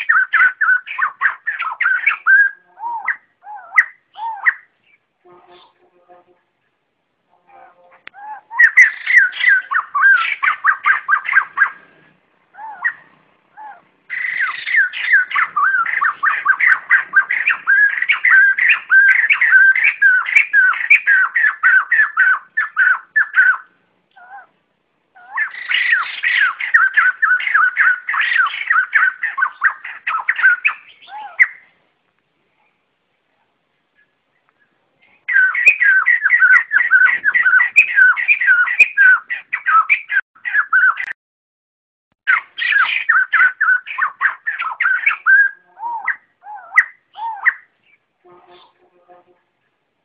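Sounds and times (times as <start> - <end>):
laughingthrush flock calling: 0.0 - 4.7, 8.2 - 23.7, 25.2 - 31.7, 35.3 - 41.1, 42.3 - 47.7.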